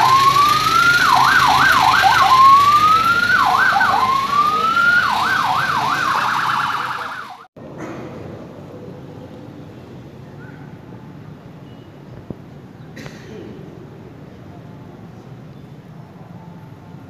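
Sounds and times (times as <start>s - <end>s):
electronic siren wailing: 0.0s - 7.5s.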